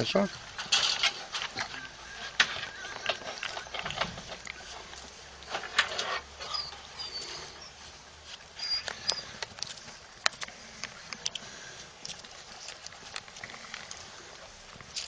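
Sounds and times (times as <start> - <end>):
puppies scuffling on dusty ground: 0.0 - 15.0
puppies squeaking: 1.5 - 5.0, 6.0 - 10.1.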